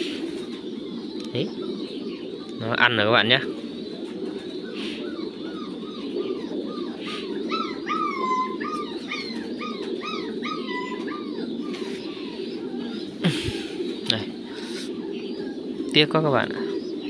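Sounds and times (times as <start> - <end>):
steady low murmur: 0.0 - 17.0
animal whining calls: 4.4 - 16.1.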